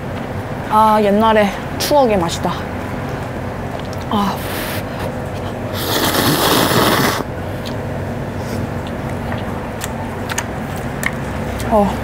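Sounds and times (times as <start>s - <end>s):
low background hum: 0.0s - 12.0s
loud noodle slurp: 5.7s - 7.3s.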